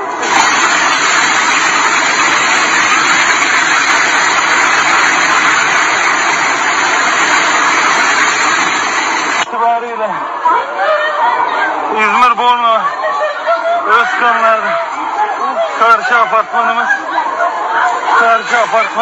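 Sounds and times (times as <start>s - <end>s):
building collapsing rushing noise: 0.1s - 9.5s.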